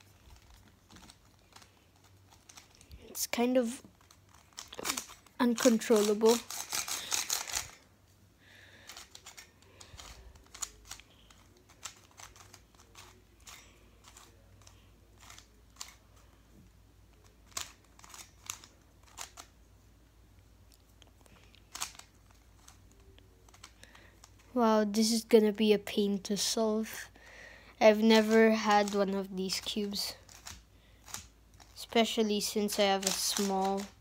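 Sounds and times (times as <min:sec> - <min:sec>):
plastic puzzle cube clicking: 0:00.1 - 0:03.0, 0:03.9 - 0:07.8, 0:08.8 - 0:16.0, 0:17.1 - 0:19.5, 0:21.1 - 0:24.5, 0:28.2 - 0:29.0, 0:30.2 - 0:31.8, 0:32.8 - 0:34.0.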